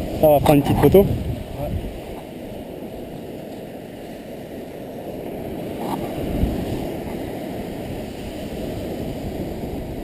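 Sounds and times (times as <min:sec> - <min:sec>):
surf breaking on beach: 0:00.0 - 0:10.0
wind: 0:00.0 - 0:10.0.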